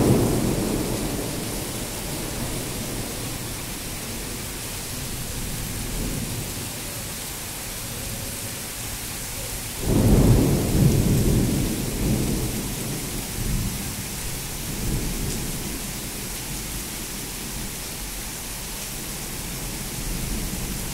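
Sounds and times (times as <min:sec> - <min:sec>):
thunder clap and rumble: 0:00.0 - 0:04.4, 0:09.8 - 0:16.9
heavy rain hissing: 0:00.0 - 0:20.9.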